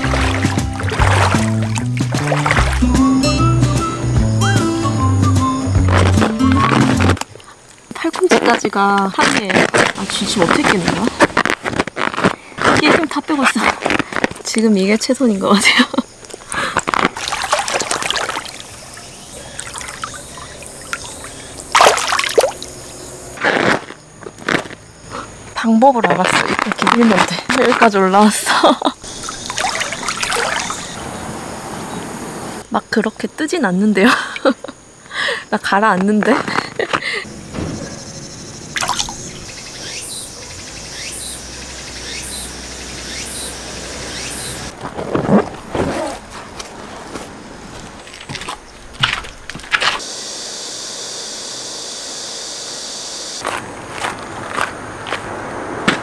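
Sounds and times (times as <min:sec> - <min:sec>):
pool water splashing: 0:00.0 - 0:03.1, 0:17.0 - 0:23.3, 0:29.0 - 0:32.2, 0:38.7 - 0:39.7
insects buzzing calls: 0:03.7 - 0:35.6, 0:36.3 - 0:44.8, 0:48.3 - 0:53.7.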